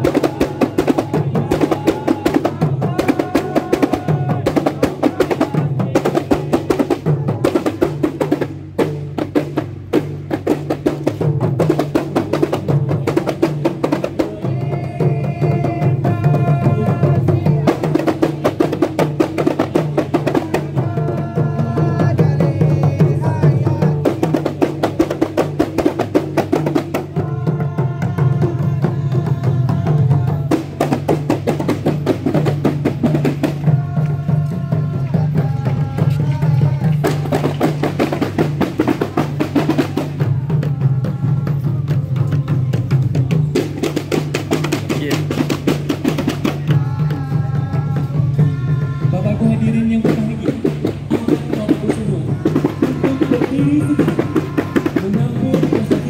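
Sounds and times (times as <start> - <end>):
hand frame drums beating fast: 0.0 - 56.0.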